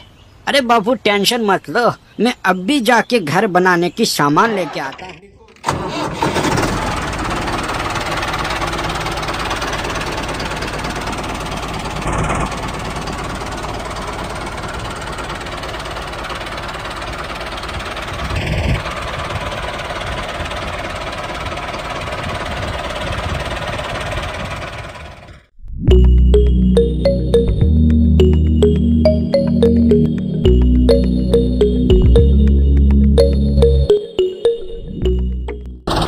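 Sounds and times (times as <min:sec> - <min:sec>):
tractor engine chugging: 0:05.7 - 0:25.5, 0:35.1 - 0:36.0.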